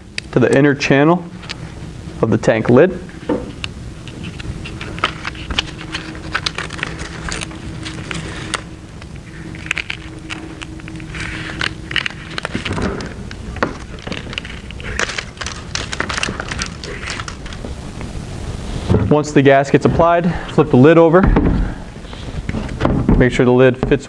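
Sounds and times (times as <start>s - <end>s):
foam strip crackling and rustling: 3.6s - 18.9s.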